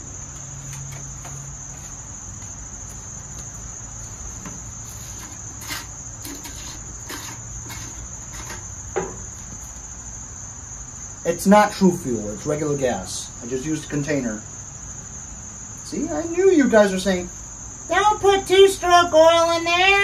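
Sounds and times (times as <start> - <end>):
high-pitched background whine: 0.0 - 20.0.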